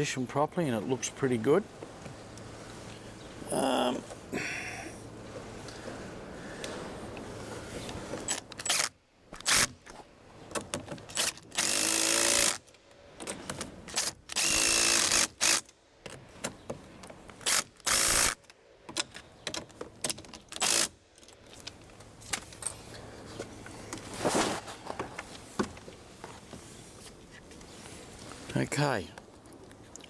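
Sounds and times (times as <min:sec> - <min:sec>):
cordless drill running: 0:14.4 - 0:15.6, 0:17.5 - 0:18.3.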